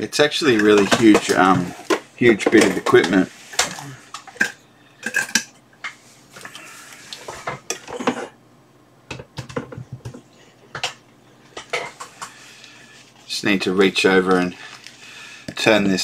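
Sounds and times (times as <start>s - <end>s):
hard objects clattering on workbench: 0.5s - 6.0s, 7.2s - 8.4s, 9.1s - 11.0s, 11.6s - 12.4s.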